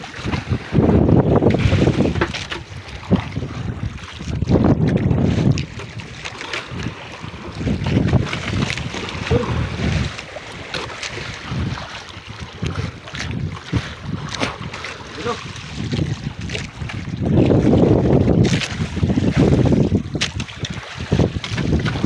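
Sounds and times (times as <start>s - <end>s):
water slapping against boat hull: 0.0s - 22.0s
wind buffeting microphone: 0.0s - 22.0s.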